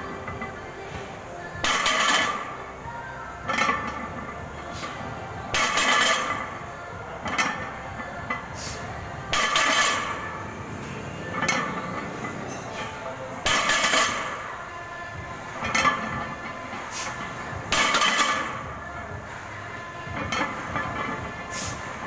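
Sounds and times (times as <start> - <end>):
barbell plates clanking: 1.6 - 2.5, 3.4 - 4.9, 5.5 - 6.6, 7.2 - 14.5, 15.1 - 18.7, 20.1 - 21.7.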